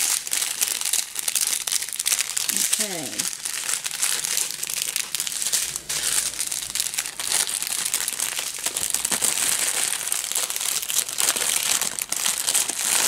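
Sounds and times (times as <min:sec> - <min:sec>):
plastic bags crinkling: 0:00.0 - 0:13.0.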